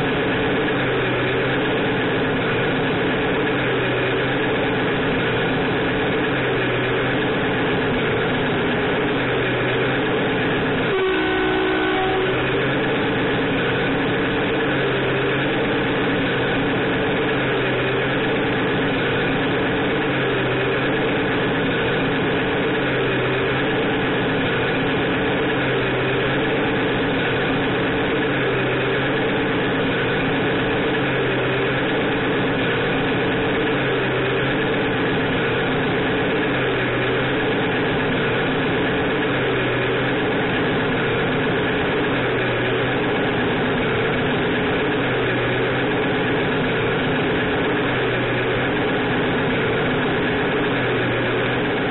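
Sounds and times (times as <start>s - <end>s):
electronic truck engine sound: 0.0s - 51.9s
truck horn: 10.8s - 13.3s.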